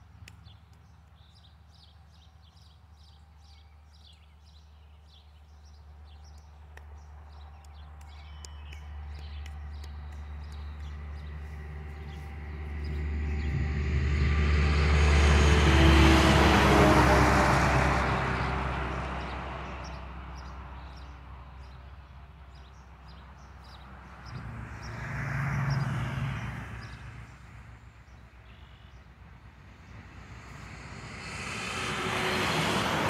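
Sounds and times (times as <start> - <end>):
truck engine approaching: 6.0 - 28.5, 29.1 - 33.0.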